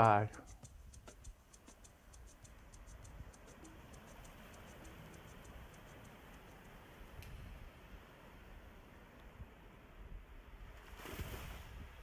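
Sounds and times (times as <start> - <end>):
faint rapid high-pitched ticking: 0.0 - 7.2.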